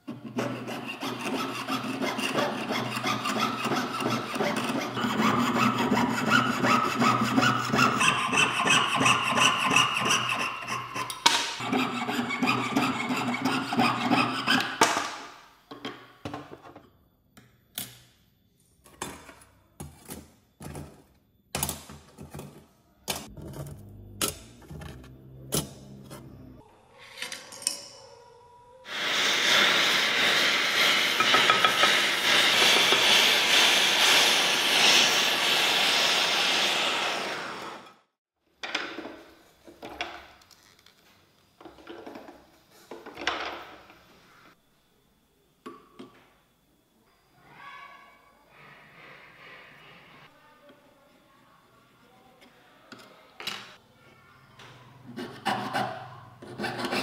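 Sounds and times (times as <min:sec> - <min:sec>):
saw cutting metal sheet: 0:00.1 - 0:14.8, 0:28.9 - 0:37.8.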